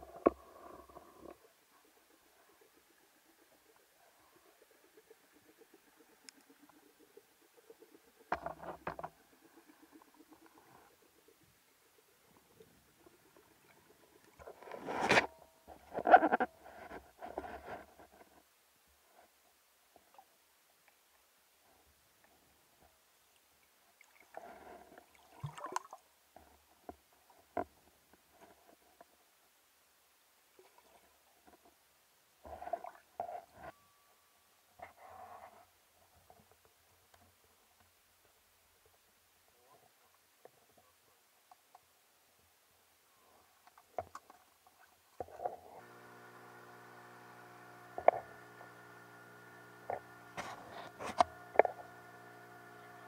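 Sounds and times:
muffled underwater knocks and scrapes: 0.0s - 7.0s, 7.6s - 11.0s, 12.3s - 18.5s, 32.5s - 33.8s, 43.7s - 46.0s, 48.0s - 48.4s, 49.9s - 52.0s
outboard motor humming: 45.8s - 53.0s.

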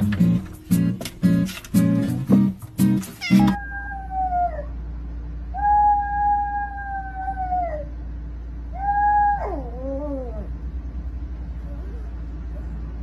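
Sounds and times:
small dog howling: 3.4s - 4.8s, 5.5s - 8.0s, 8.7s - 10.6s.

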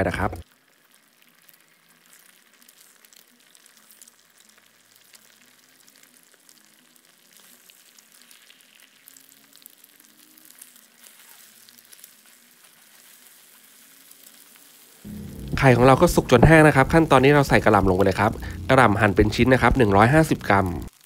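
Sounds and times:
eggs sizzling in hot oil: 0.3s - 21.0s
wooden spatula stirring in wok: 11.9s - 13.8s.

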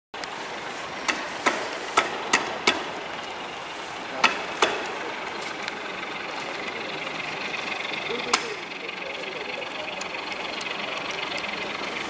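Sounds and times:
sharp hammer-like knocks: 1.0s - 3.0s, 4.2s - 5.0s.

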